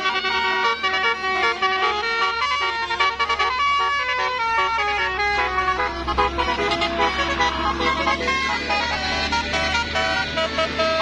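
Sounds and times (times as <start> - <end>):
bus musical horn tune: 0.0 - 11.0
low engine hum: 0.0 - 11.0.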